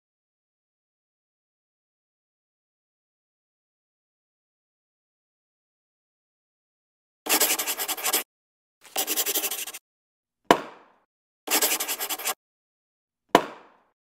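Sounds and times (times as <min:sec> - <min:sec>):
pen scratching on paper: 0:07.3 - 0:08.2, 0:08.8 - 0:09.8, 0:11.5 - 0:12.4.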